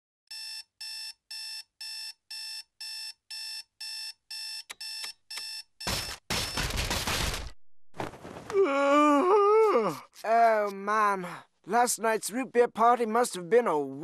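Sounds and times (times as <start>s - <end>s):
alarm clock beeping: 0.3s - 6.6s
fist smashing clock: 5.8s - 7.6s.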